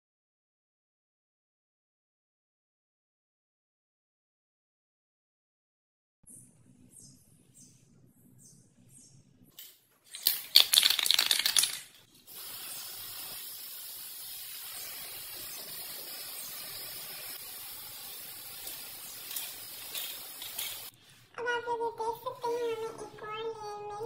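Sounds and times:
spray paint can rattling: 9.6 - 20.9
spray can hissing: 10.1 - 20.9.

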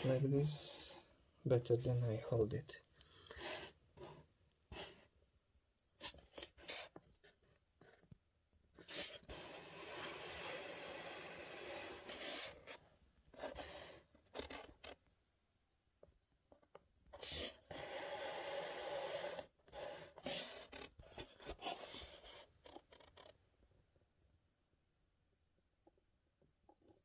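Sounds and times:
handling noise rubbing and scraping: 0.0 - 2.6, 6.0 - 15.1, 16.5 - 23.4.

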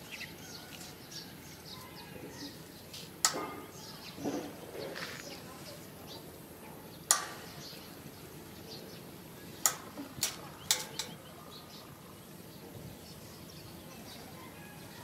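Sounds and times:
faint bird chirping: 0.0 - 15.0.

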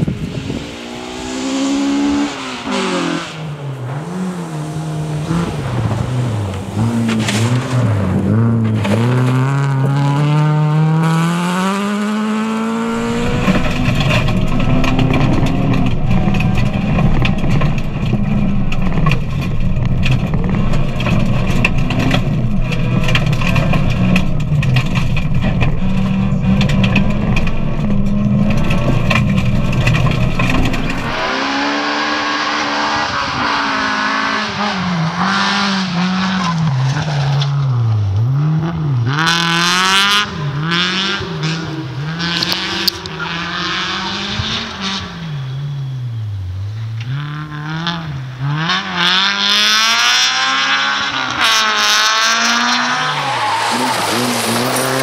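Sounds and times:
rally car engine revving: 0.0 - 55.0
gravel clattering against car: 3.5 - 10.8, 12.6 - 31.8, 51.7 - 55.0.

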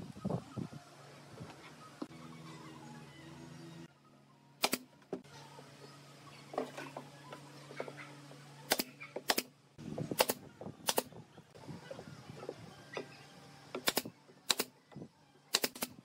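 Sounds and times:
nail gun shots: 4.6 - 4.9, 8.7 - 9.5, 10.1 - 11.1, 13.8 - 14.7, 15.5 - 16.0.

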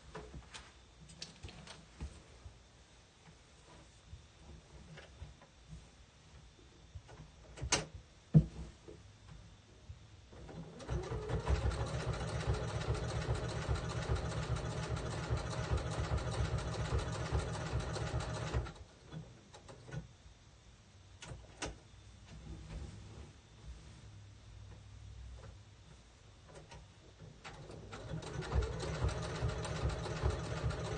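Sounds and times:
sewing machine stitching: 10.4 - 18.8, 27.5 - 30.9.

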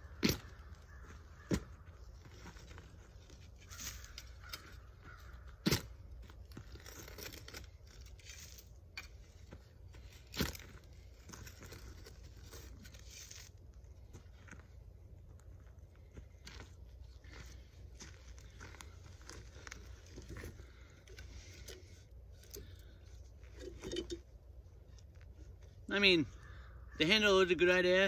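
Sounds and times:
earth crunching and tearing: 0.0 - 14.6, 15.3 - 23.6
shovel blade striking soil: 5.6 - 6.0.

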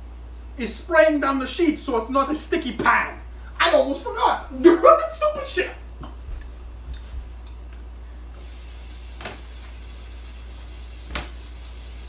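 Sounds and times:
aerosol spray hissing: 8.4 - 12.0.

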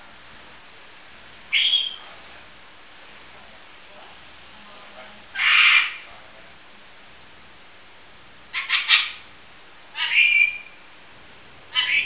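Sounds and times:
bird whistle: 1.5 - 2.1, 10.0 - 10.8
lorikeet rasping screeches: 1.5 - 2.1, 5.4 - 6.1, 8.6 - 9.3, 10.0 - 10.8, 11.7 - 12.0.

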